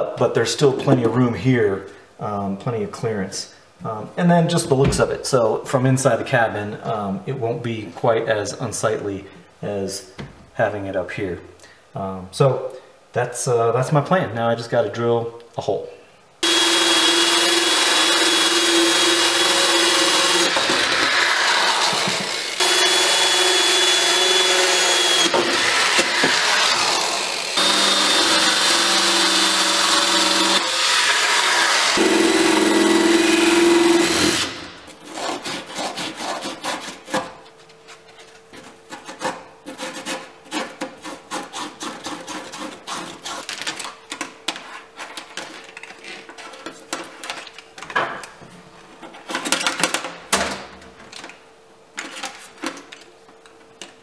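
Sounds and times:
drill with hole saw cutting fiberglass: 0:16.4 - 0:34.7.

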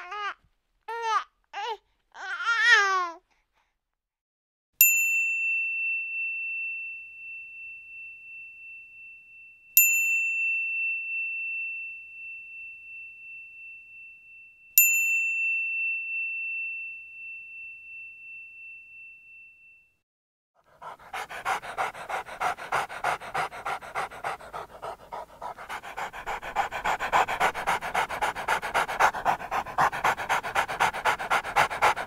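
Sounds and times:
small bell ringing: 0:04.8 - 0:19.9.

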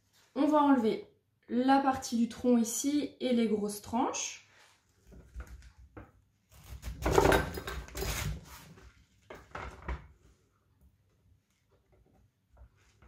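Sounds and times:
knife crunching through cabbage: 0:06.5 - 0:08.7.

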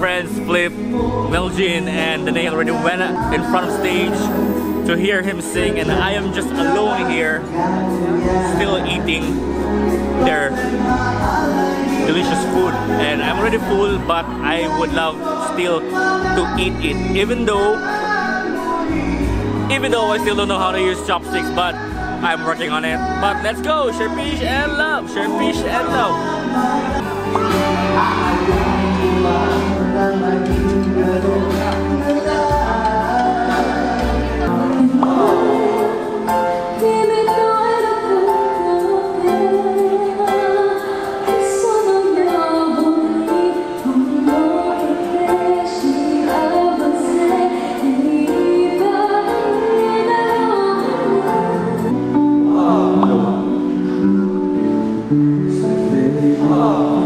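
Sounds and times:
live band music: 0:00.0 - 0:57.0
girl singing: 0:14.8 - 0:19.2, 0:21.2 - 0:24.2, 0:36.8 - 0:51.6
heavy bass line: 0:22.9 - 0:35.4.

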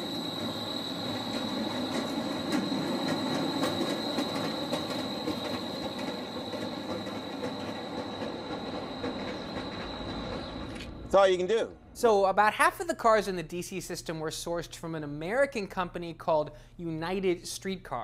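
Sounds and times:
streetcar rolling past: 0:00.0 - 0:11.3
high-pitched whine: 0:00.0 - 0:11.4.

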